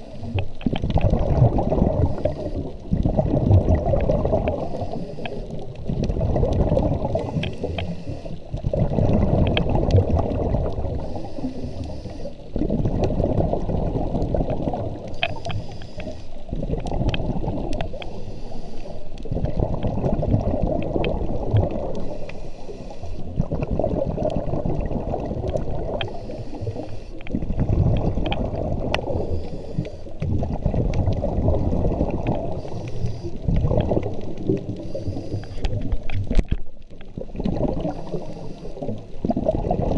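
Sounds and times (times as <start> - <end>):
regulator hissing inhale: 0.0 - 0.6, 2.0 - 2.8, 4.6 - 5.6, 7.1 - 8.5, 11.0 - 12.5, 15.0 - 16.4, 17.9 - 19.2, 22.0 - 23.3, 26.0 - 27.3, 29.1 - 30.2, 32.5 - 33.5, 34.8 - 35.9, 37.8 - 39.0
bubbling exhaled air underwater: 0.0 - 39.9.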